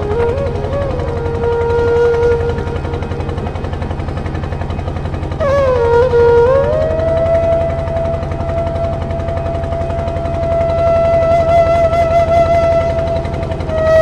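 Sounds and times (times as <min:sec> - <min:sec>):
boat engine chugging: 0:00.0 - 0:14.0
melody of wavering held notes: 0:00.0 - 0:14.0.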